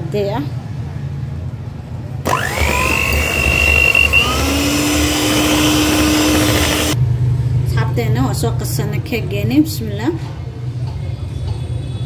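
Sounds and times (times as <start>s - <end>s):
electric stand mixer whirring: 2.3s - 7.0s
low motor hum: 2.3s - 7.1s.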